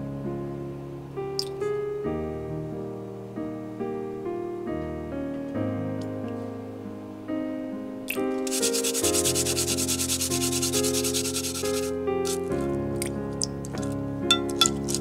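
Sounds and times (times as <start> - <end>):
soft piano music: 0.0 - 15.0
garlic grated on metal grater: 8.5 - 12.5.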